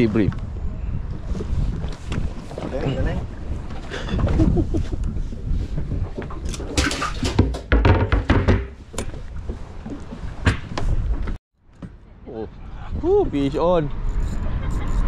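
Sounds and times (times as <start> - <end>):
wind rumbling on microphone: 0.0 - 11.4, 12.0 - 15.0
knocks and thumps on boat: 1.9 - 12.0.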